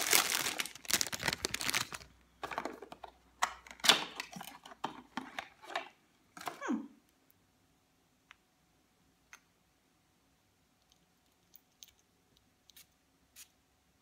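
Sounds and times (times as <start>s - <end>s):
packaging rustling: 0.0s - 3.1s.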